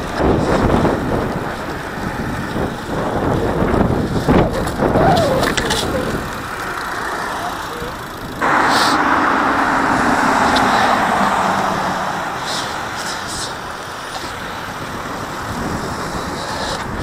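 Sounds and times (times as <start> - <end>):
car passing by: 6.7 - 17.0.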